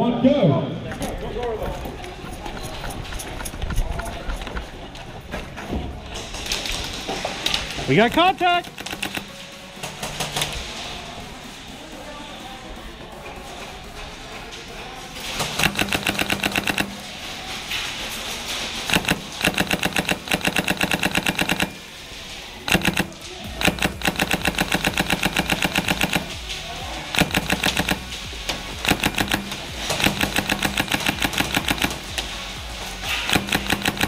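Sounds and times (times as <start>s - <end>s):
airsoft rifles firing bursts: 7.9s - 10.6s, 15.2s - 17.3s, 18.8s - 22.0s, 22.6s - 34.0s.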